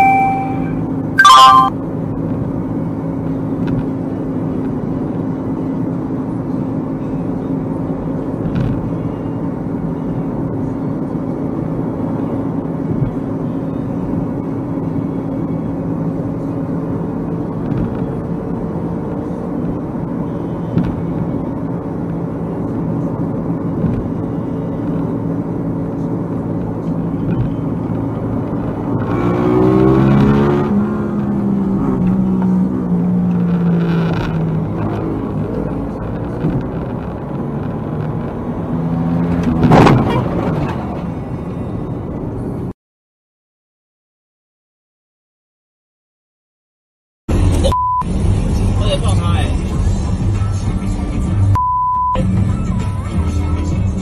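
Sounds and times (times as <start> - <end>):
car horn honk: 0.0 - 1.7
car engine and road noise: 0.0 - 42.8, 47.3 - 54.0.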